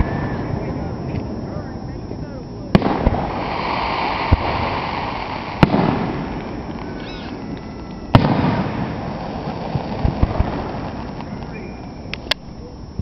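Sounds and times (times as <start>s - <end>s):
continuous noisy background: 0.0s - 13.0s
firework shells bursting: 2.7s - 12.6s.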